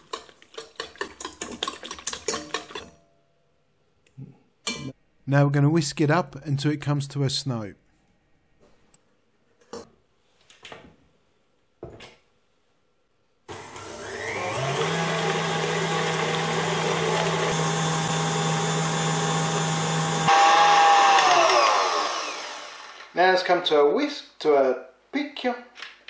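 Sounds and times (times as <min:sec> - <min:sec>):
stand mixer motor whisking: 0:13.5 - 0:23.1.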